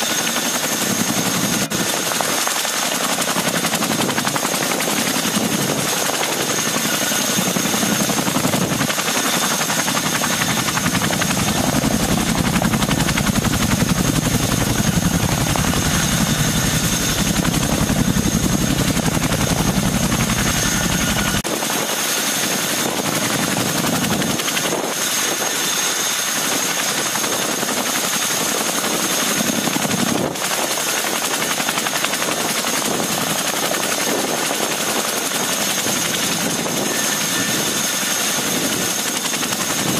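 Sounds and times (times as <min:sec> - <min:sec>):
turbine engine whine: 0:00.0 - 0:26.3, 0:35.7 - 0:39.9
helicopter rotors beating: 0:00.0 - 0:39.9.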